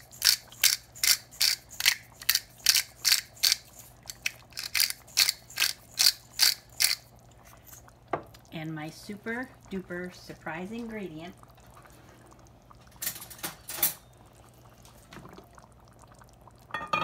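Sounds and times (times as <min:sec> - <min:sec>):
pepper mill grinding: 0:00.0 - 0:07.1.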